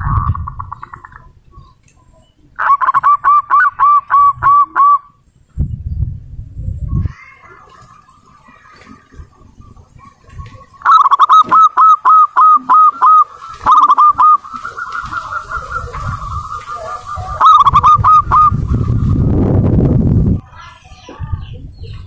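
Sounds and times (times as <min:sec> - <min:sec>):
dove cooing: 0:02.6 - 0:05.2, 0:07.6 - 0:19.4.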